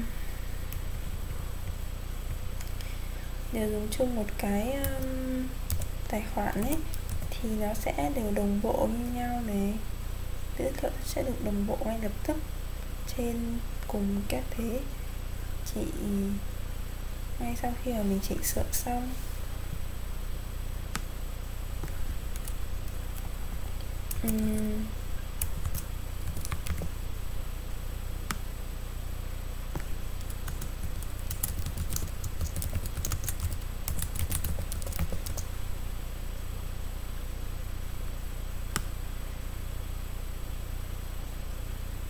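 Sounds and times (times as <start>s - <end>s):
steady low hum: 0.0s - 42.0s
keyboard typing: 5.7s - 5.9s, 6.6s - 7.4s, 21.8s - 23.3s, 24.1s - 24.8s, 25.4s - 26.9s, 29.7s - 35.5s
person humming: 24.1s - 25.0s.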